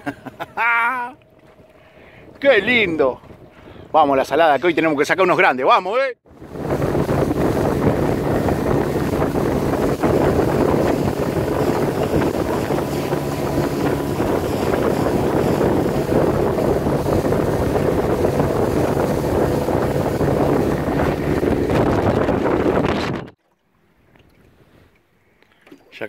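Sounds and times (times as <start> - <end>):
outboard motor running: 6.2 - 23.3
water rushing along hull: 6.2 - 26.0
wind on microphone: 6.3 - 23.4
hull knocking on waves: 6.4 - 23.2.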